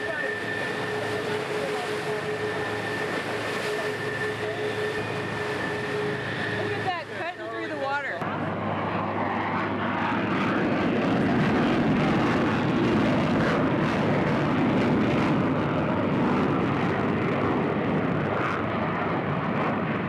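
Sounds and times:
water noise: 0:00.0 - 0:09.5
engine roar: 0:00.0 - 0:20.0
wind noise: 0:08.3 - 0:20.0.

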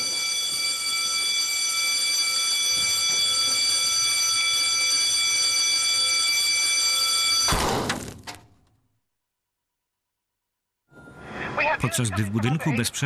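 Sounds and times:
fire alarm tone: 0:00.0 - 0:07.8.

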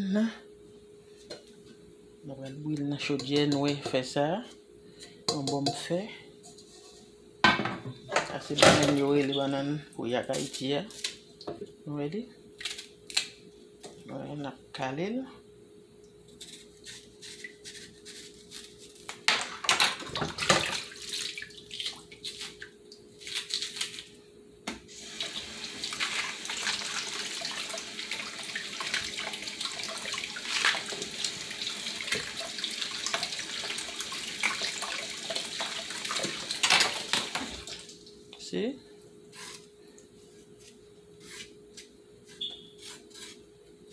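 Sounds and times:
faucet running into sink: 0:25.0 - 0:37.9.

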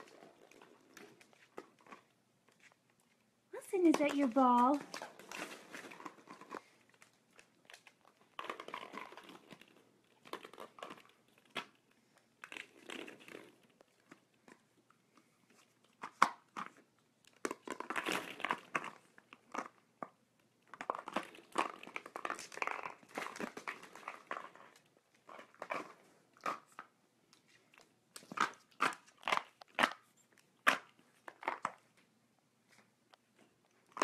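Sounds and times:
plastic balls clattering: 0:03.6 - 0:06.7, 0:16.0 - 0:26.9.

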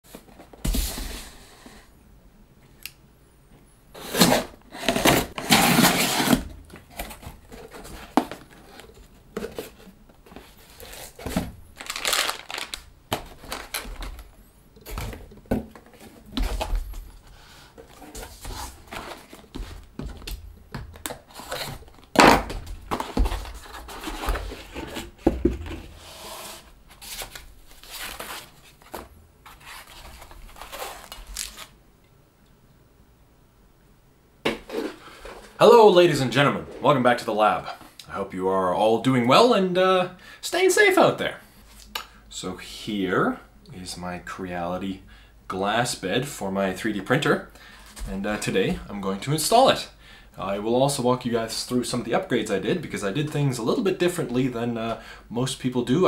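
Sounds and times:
cardboard and packing foam handling: 0:04.0 - 0:31.8.

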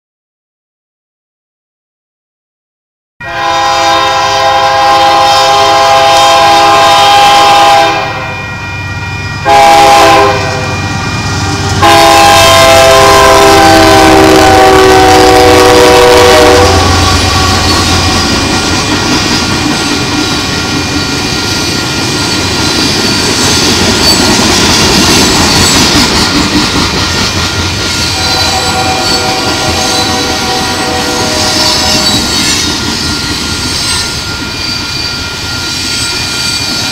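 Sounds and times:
locomotive air horn blasts: 0:03.2 - 0:08.5, 0:09.4 - 0:18.5, 0:28.1 - 0:32.3
train rumble and wheel clatter: 0:03.3 - 0:36.9.

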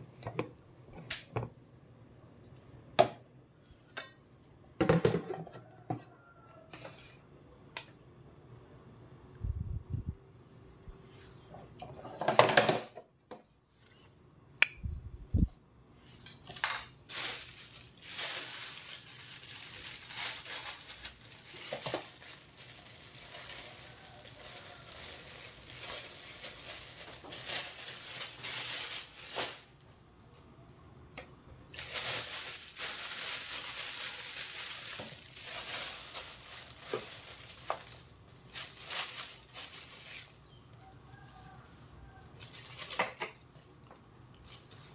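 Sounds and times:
plastic bag rustling: 0:16.2 - 0:29.8, 0:31.7 - 0:44.9.

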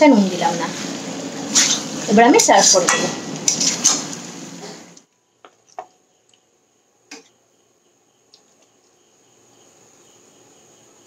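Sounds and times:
cricket chirping: 0:05.0 - 0:11.0.

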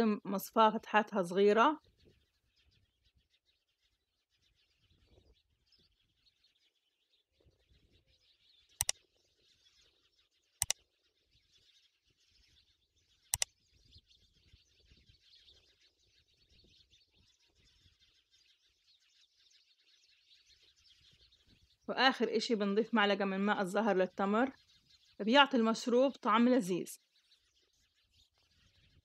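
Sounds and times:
small birds chirping: 0:00.0 - 0:29.0
sharp clicks: 0:08.8 - 0:09.0.

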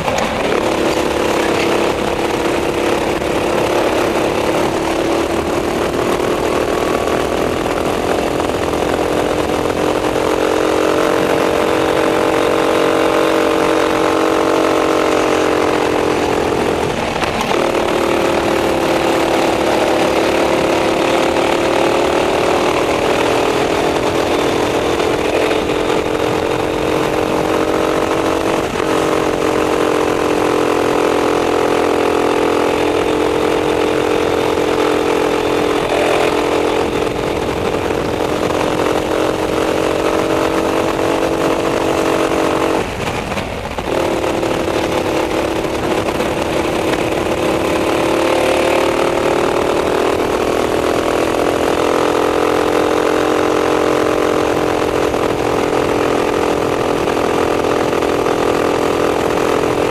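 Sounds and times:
kart engine at high revs: 0:00.0 - 0:59.9.

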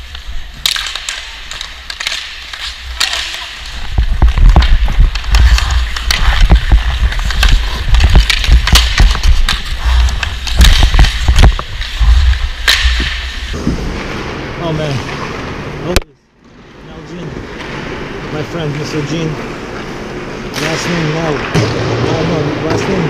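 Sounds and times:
hockey stick clicking on puck: 0:00.0 - 0:13.4
skate blades scraping ice: 0:00.0 - 0:15.7.

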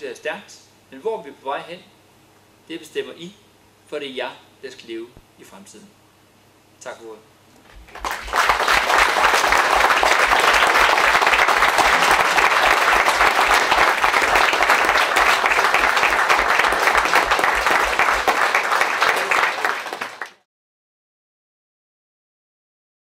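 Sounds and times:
audience applauding: 0:07.8 - 0:20.4.

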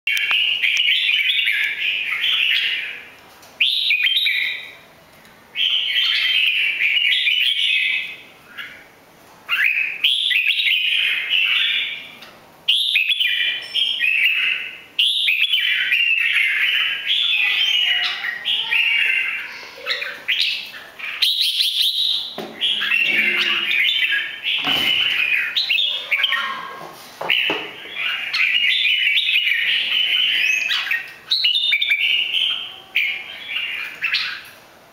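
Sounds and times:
bird chattering and warbling: 0:09.5 - 0:34.6.

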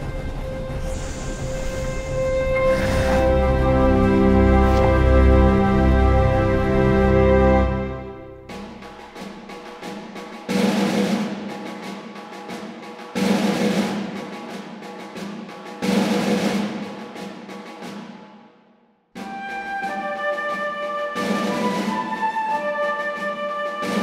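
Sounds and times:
rapid drum strokes: 0:00.0 - 0:05.7, 0:08.2 - 0:18.6, 0:19.2 - 0:24.0
loud drum hits: 0:08.4 - 0:18.2.

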